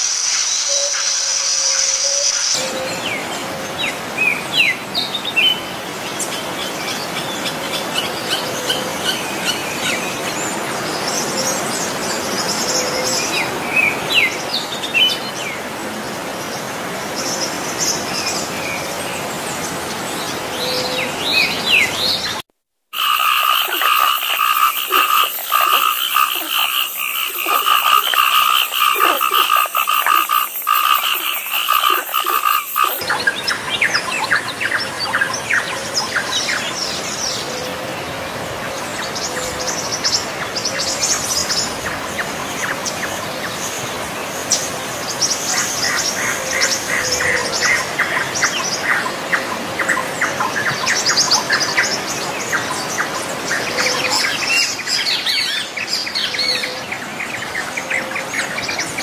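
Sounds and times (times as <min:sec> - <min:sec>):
high trilling animal chorus: 0:23.0 - 0:33.0.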